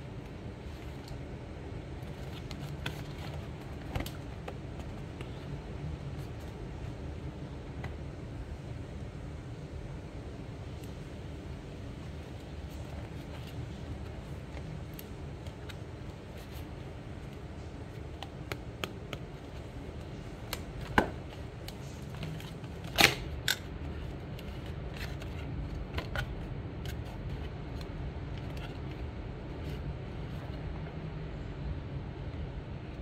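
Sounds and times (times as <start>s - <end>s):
cardboard box clicks and taps: 18.2s - 19.3s.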